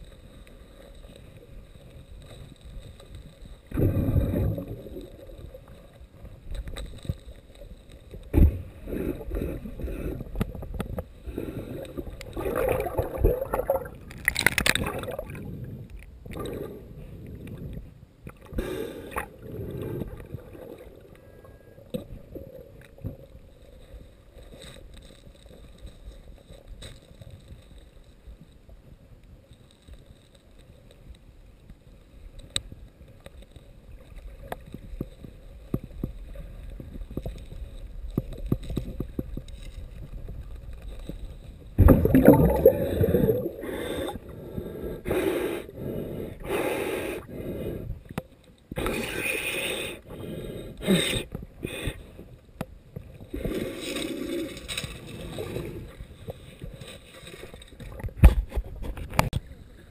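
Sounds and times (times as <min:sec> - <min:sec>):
low muffled underwater rumble: 0:01.5 - 0:07.5.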